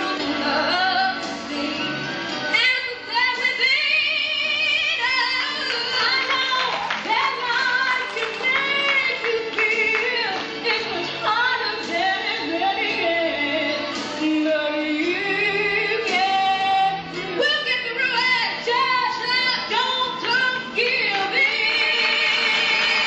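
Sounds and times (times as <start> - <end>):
woman singing: 0.0 - 1.9, 2.5 - 23.0
musical accompaniment: 0.0 - 23.0.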